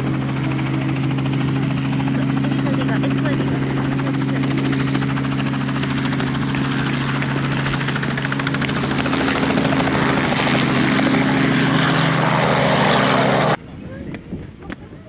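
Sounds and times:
helicopter engine hum: 0.0s - 13.6s
helicopter rotor chop: 0.0s - 13.6s.

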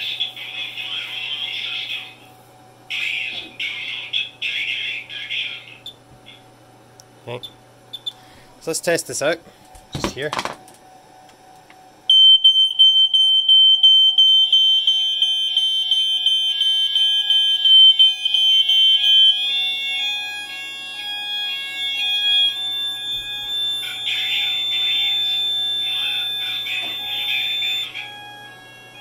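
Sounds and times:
smoke alarm pulsing tone: 7.9s - 8.2s, 12.1s - 29.0s
two-tone alarm sounders: 12.1s - 29.0s.

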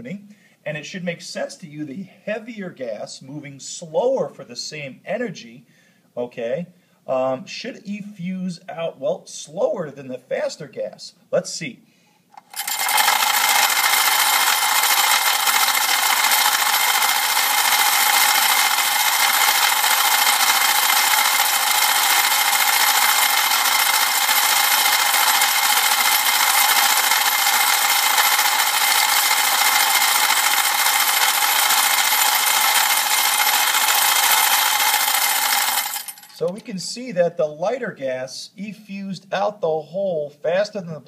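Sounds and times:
glass marbles rattling on metal: 12.4s - 36.5s.

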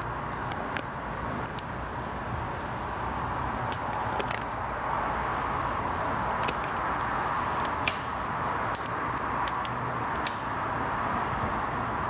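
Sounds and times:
steady rushing background noise: 0.0s - 12.0s
plastic film peeling with crackles: 3.7s - 4.5s.

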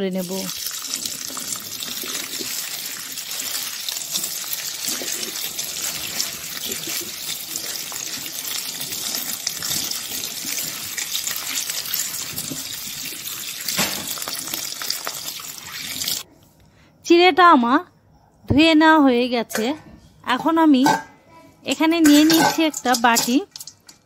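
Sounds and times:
tap water running: 0.0s - 16.2s, 22.0s - 24.0s.

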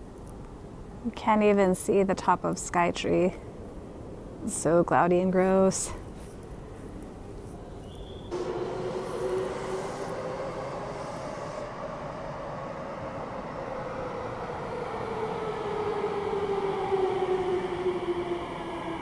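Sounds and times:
train wheels on rails: 8.2s - 19.0s
electric motor whine: 8.4s - 11.7s.

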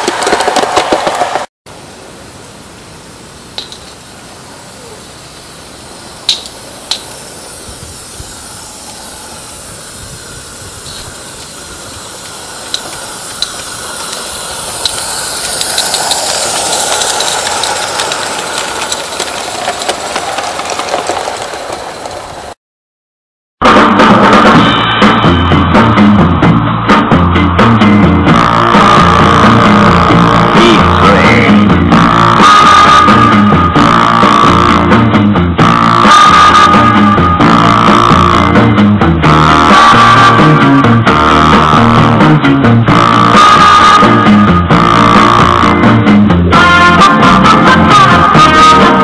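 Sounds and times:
steam locomotive hissing and running: 0.0s - 22.6s, 27.7s - 49.0s
sharp ticks: 6.2s - 7.9s, 10.7s - 21.8s
rock music with guitar and bass: 23.6s - 49.0s.

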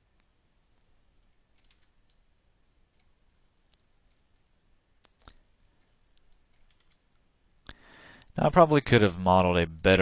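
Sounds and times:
computer mouse clicks: 0.2s - 0.4s, 1.2s - 8.4s.

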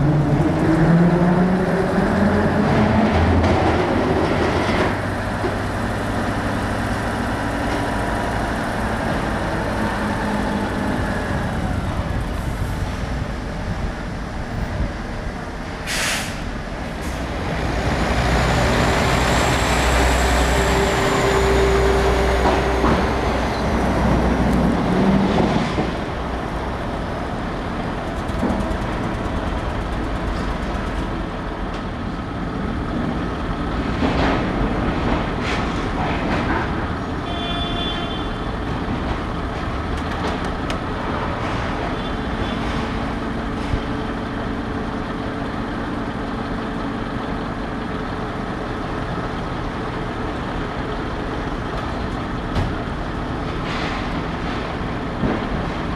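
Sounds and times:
diesel trucks driving past: 0.0s - 55.9s
air-brake hiss: 15.8s - 17.3s.

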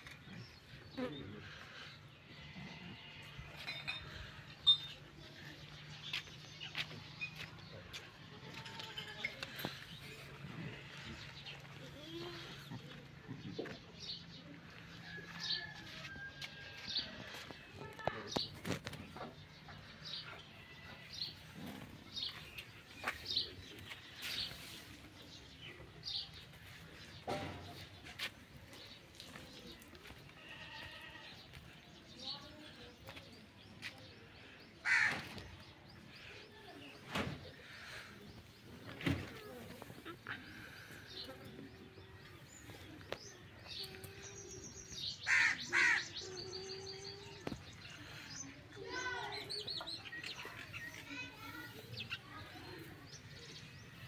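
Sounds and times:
harsh bird calls: 43.2s - 51.0s.

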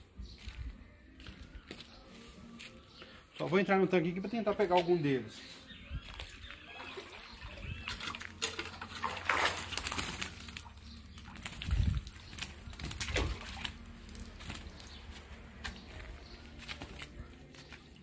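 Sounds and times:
water splashing and sloshing: 6.0s - 18.0s
fish flapping in net: 7.8s - 15.3s.

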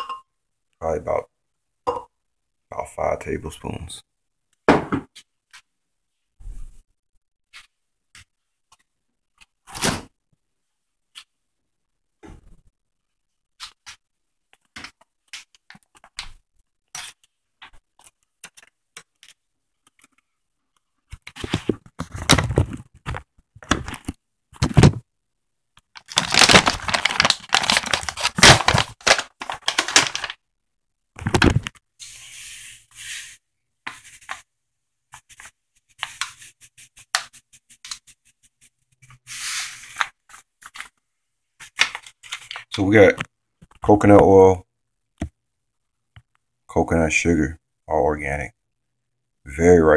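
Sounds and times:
scraping and rustling: 26.0s - 30.4s.

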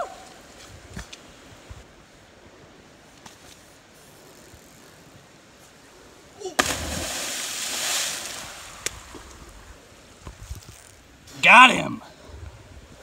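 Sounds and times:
body slapping water: 6.6s - 9.2s
water splashing: 6.6s - 9.7s.

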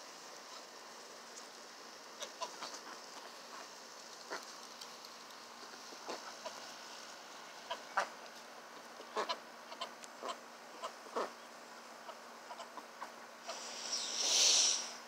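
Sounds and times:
ducks calling quietly: 0.0s - 15.0s
loud hiss: 13.4s - 15.0s.

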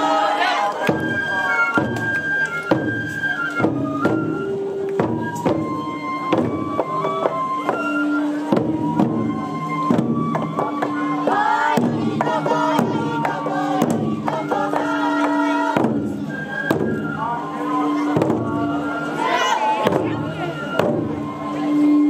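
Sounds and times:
crowd chatter: 0.0s - 22.0s
held flute tones: 0.0s - 22.0s
taiko drums struck: 8.5s - 11.0s, 11.7s - 17.0s, 18.1s - 18.6s, 19.8s - 21.1s.

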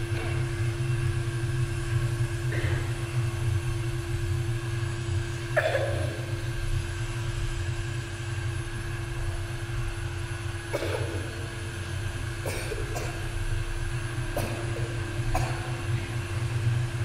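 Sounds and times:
low rumbling drone: 0.0s - 8.4s
steady hum: 0.0s - 17.0s.

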